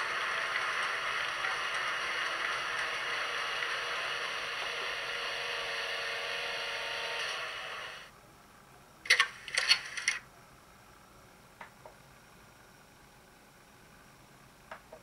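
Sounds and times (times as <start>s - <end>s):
sharp clicks: 9.1s - 10.2s.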